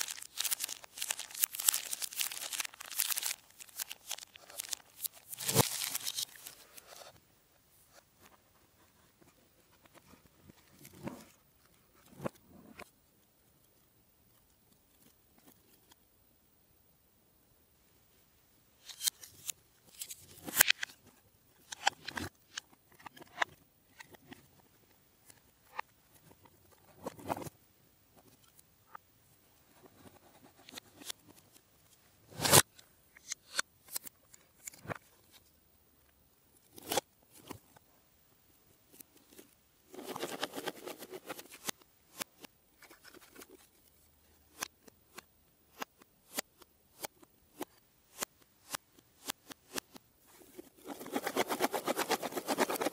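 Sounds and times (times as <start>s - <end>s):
packaging crinkling: 0.0s - 6.6s.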